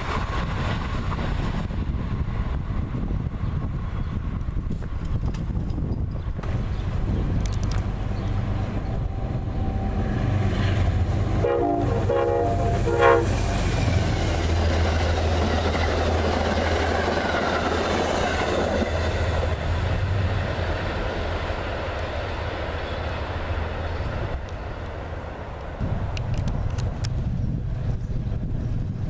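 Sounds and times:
diesel engine drone: 0:06.4 - 0:15.4
train horn blasts: 0:11.2 - 0:13.8.

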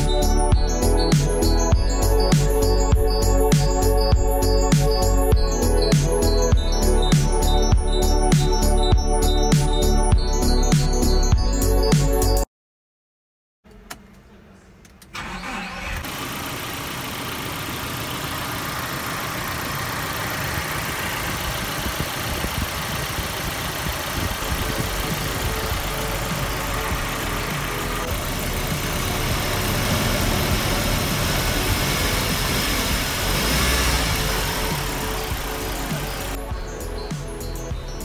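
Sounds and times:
car engine starting and idling: 0:13.7 - 0:38.0.

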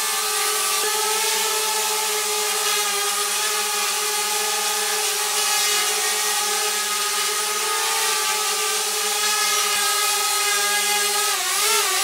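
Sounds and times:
drone propellers whirring buzz: 0:05.6 - 0:12.0.

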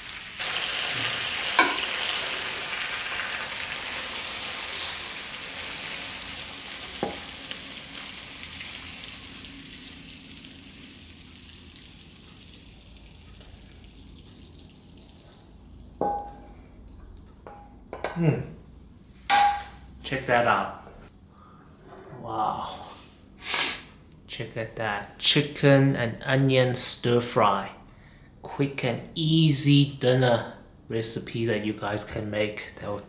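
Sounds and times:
stir fry sizzling in a wok: 0:00.0 - 0:16.4
ladle knocking against wok: 0:01.6 - 0:01.8, 0:16.0 - 0:16.5, 0:19.3 - 0:19.8.

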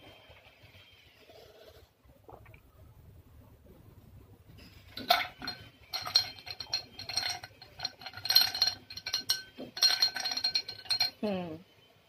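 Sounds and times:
drinking glass clinking: 0:04.9 - 0:11.2.

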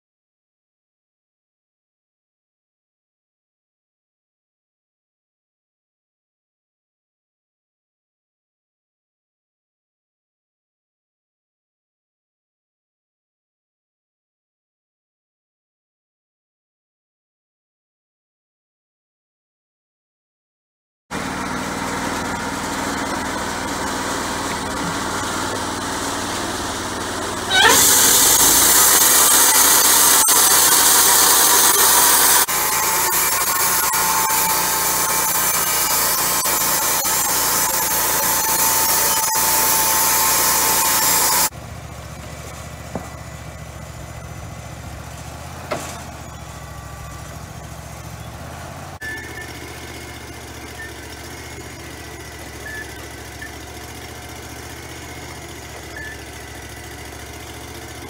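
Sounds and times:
sawmill engine running: 0:21.1 - 0:58.0
band saw blade cutting log: 0:21.2 - 0:41.5, 0:44.3 - 0:58.0.

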